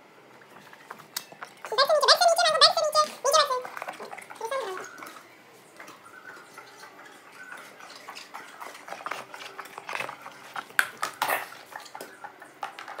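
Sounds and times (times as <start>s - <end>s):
dog claws clicking on tiles: 8.0s - 13.0s.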